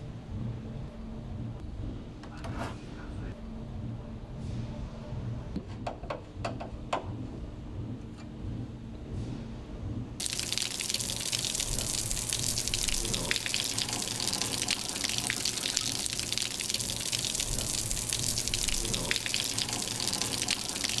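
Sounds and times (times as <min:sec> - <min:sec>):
water splashing on tiles: 0:10.2 - 0:21.0
water trickling into gutter: 0:10.2 - 0:21.0.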